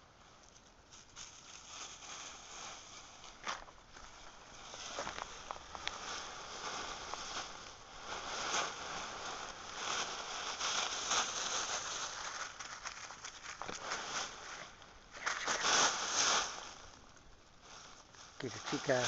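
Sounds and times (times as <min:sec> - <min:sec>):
dry leaves crunching: 0:00.9 - 0:19.0.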